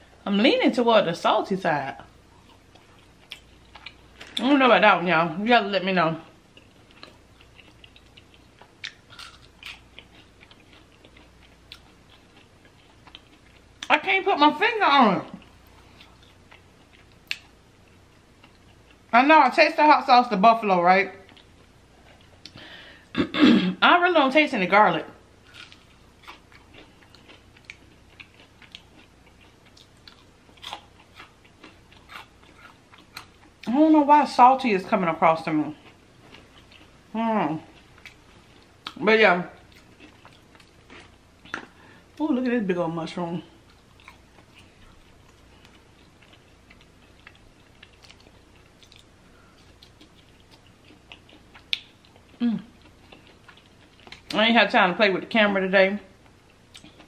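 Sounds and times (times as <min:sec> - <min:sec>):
chewing fried food: 0:02.0 - 0:04.6, 0:06.3 - 0:14.0, 0:15.2 - 0:19.1, 0:21.2 - 0:22.6, 0:25.3 - 0:33.8, 0:35.4 - 0:39.0, 0:39.6 - 0:42.2, 0:43.4 - 0:54.4, 0:56.1 - 0:57.0.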